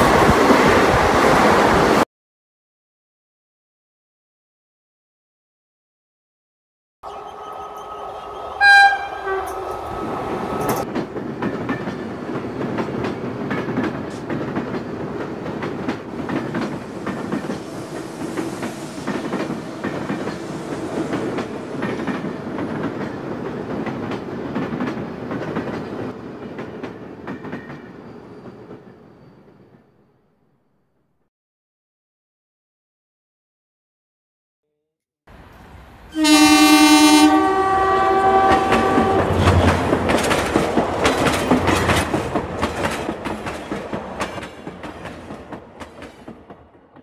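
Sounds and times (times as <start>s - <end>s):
train horn: 7.0s - 10.8s, 36.1s - 39.4s
train wheels clattering on rails: 9.4s - 29.6s, 38.2s - 47.0s.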